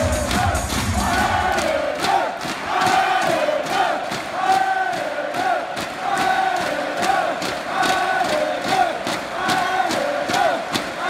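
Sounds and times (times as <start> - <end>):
loud music with bass beat: 0.0 - 1.6
arena crowd chanting: 0.0 - 11.0.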